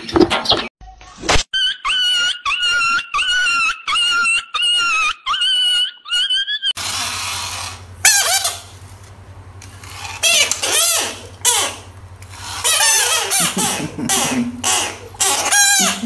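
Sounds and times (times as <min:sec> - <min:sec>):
frog screaming: 0:01.6 - 0:08.6.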